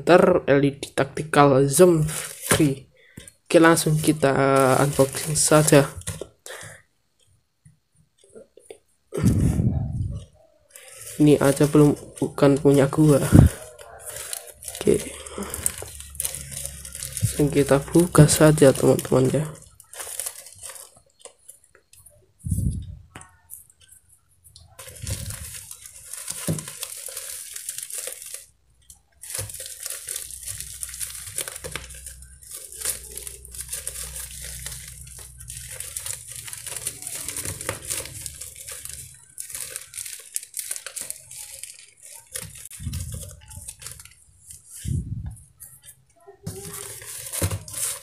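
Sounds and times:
plastic packaging crinkling and tearing: 1.6s - 6.8s, 8.2s - 48.0s.

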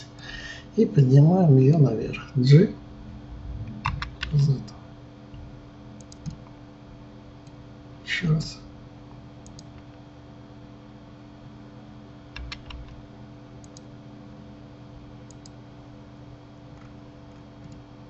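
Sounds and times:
low electrical hum: 0.0s - 18.0s
mouse and keyboard clicks: 6.0s - 6.4s.

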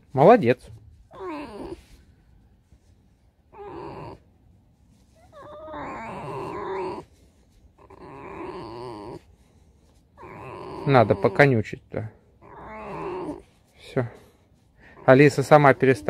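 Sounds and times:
fox whining: 1.1s - 2.1s, 3.5s - 4.3s, 5.1s - 9.4s, 10.2s - 11.6s, 12.4s - 13.6s, 14.8s - 16.0s.

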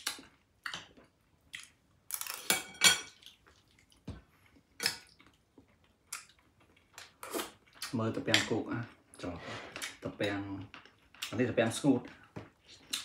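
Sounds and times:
cutlery clinking on crockery: 2.2s - 3.2s.

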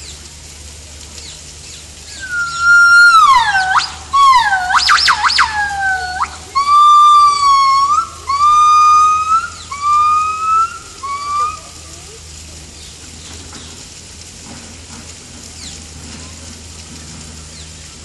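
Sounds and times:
gibbons singing whistled notes: 2.1s - 12.0s.

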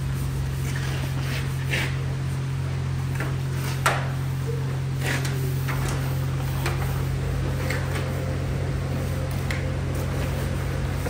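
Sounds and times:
foam brush scrubbing metal: 0.0s - 2.5s
low equipment hum: 0.0s - 11.0s.

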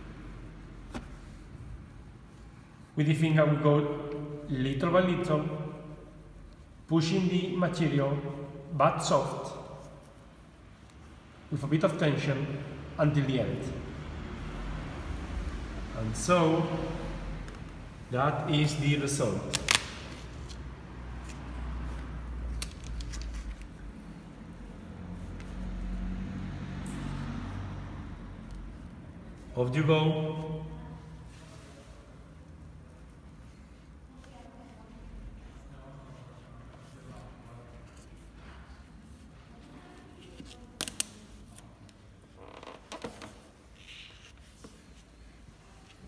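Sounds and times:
finger rubbing vinyl decal: 16.6s - 26.2s.

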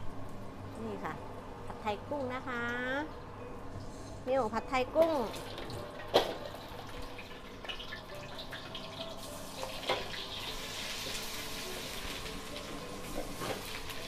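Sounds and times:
food sizzling in hot oil: 5.4s - 14.0s.

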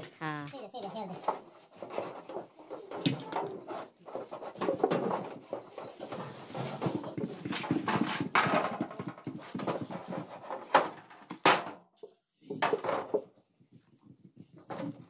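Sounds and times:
metal trays clanking: 1.2s - 11.8s.

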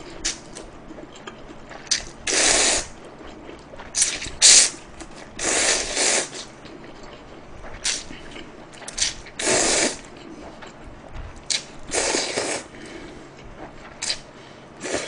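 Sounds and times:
man slurping noodles: 2.3s - 2.9s, 5.4s - 6.4s, 9.4s - 10.0s, 11.5s - 12.7s.

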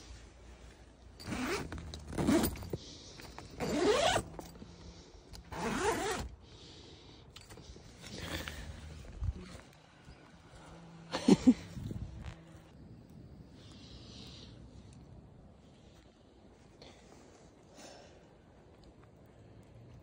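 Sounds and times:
zipper being pulled open: 1.2s - 2.8s, 3.5s - 4.6s, 5.4s - 6.3s, 11.6s - 12.7s.

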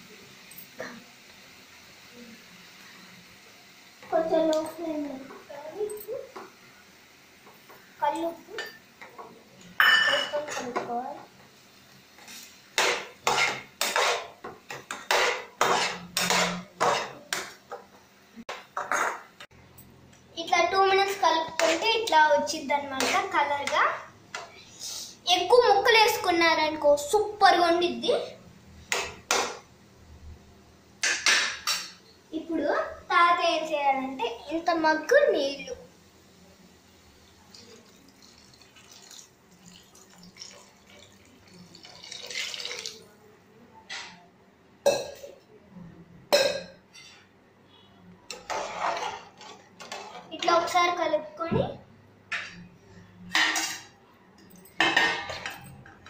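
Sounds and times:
metal spoon scraping metal pan: 12.8s - 14.3s, 14.9s - 17.2s, 48.3s - 50.3s
water pouring and splashing: 37.4s - 43.1s.

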